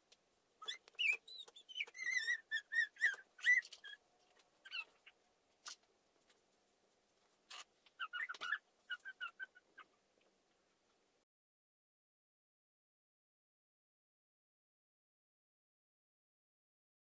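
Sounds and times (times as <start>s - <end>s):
small bird chirping: 0.6s - 4.0s, 4.6s - 5.8s, 7.5s - 10.0s.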